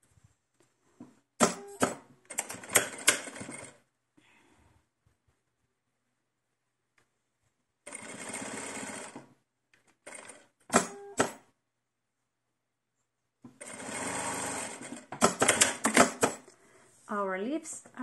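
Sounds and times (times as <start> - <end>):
sewing machine stitching: 1.4 - 3.8, 7.9 - 11.4, 13.6 - 16.5.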